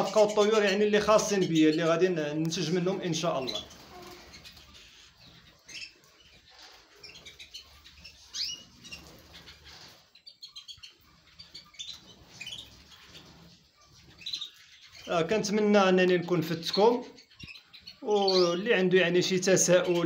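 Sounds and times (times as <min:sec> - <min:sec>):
canaries chirping: 0:00.0 - 0:20.0
wings fluttering: 0:03.2 - 0:15.1.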